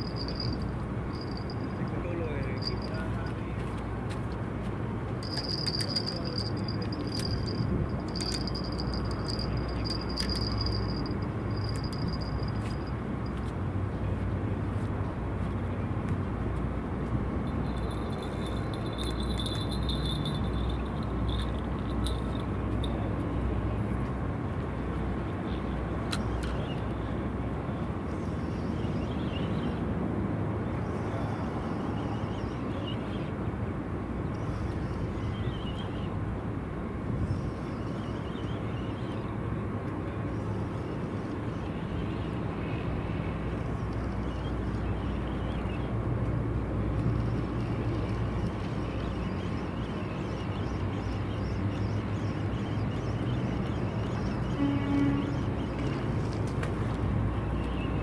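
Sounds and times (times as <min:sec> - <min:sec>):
thin high chirps: 0:00.0 - 0:01.8.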